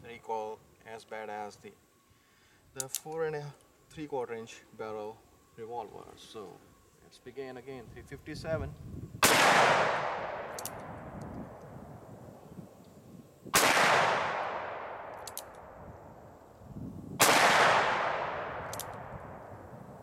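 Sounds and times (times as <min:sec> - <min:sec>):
revolver hammer cocking clicks: 0:02.8 - 0:03.2, 0:10.4 - 0:11.7, 0:15.0 - 0:15.8, 0:17.3 - 0:19.2
revolver gunshots echoing: 0:09.2 - 0:10.8, 0:13.6 - 0:15.3, 0:17.2 - 0:19.3.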